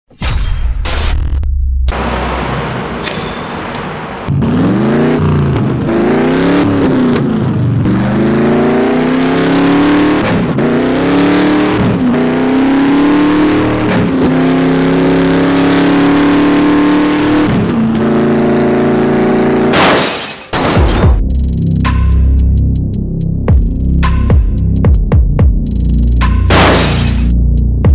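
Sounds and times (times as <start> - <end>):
racing car engine accelerating: 4.0 - 19.7.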